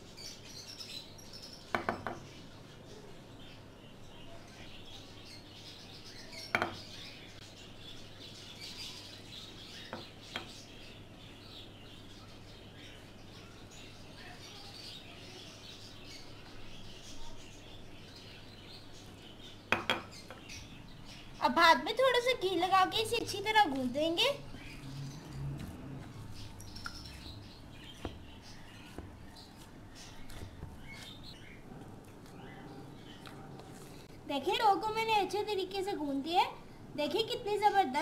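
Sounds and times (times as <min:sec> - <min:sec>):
knocks against bowl: 0:01.7 - 0:02.2, 0:06.5 - 0:06.8, 0:19.7 - 0:20.1.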